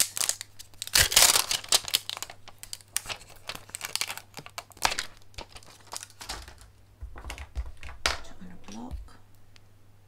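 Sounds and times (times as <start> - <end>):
plastic sheet crinkling: 0.0 - 8.1.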